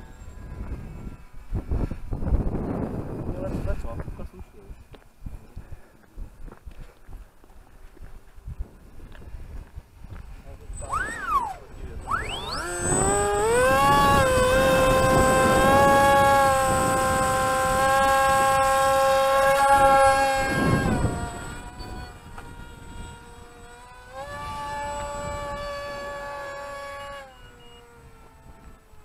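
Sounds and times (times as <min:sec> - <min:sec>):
electric propeller motor whine: 0:00.0 - 0:04.4, 0:10.2 - 0:29.0.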